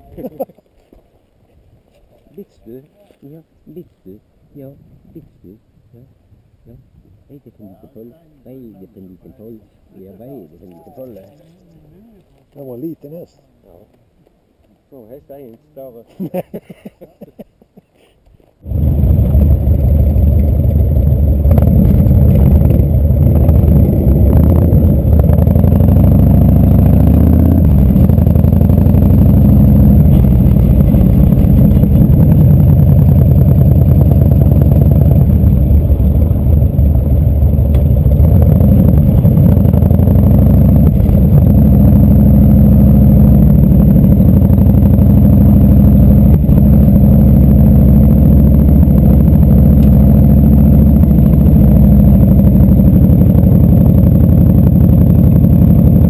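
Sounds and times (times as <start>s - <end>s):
motorcycle engine running: 18.6s - 56.0s.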